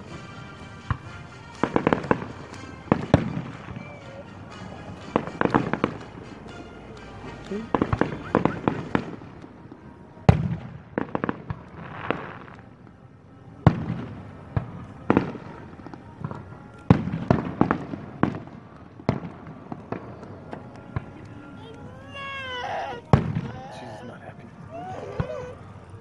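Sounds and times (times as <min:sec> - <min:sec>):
firework shells bursting: 0:00.0 - 0:09.6.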